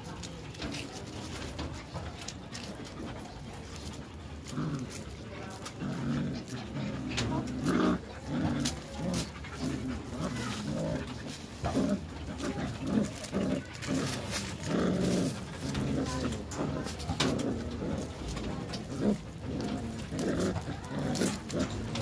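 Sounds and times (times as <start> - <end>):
puppies growling: 0.0 - 22.0
scratchy clicks of scuffling: 0.0 - 22.0.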